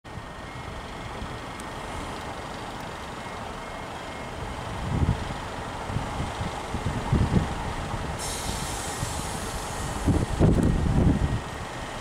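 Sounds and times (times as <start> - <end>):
diesel train engine running: 0.1 - 12.0.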